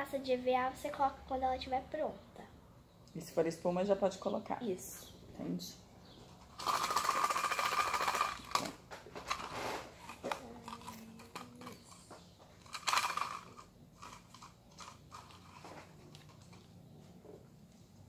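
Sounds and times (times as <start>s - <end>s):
paper slips rattling in plastic cup: 6.6s - 11.9s, 12.6s - 16.5s.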